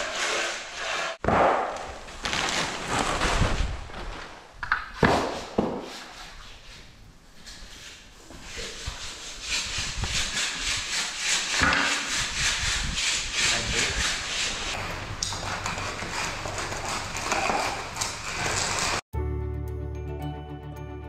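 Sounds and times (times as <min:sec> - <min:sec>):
steel groover scraping concrete: 0:00.0 - 0:01.2, 0:10.2 - 0:19.0.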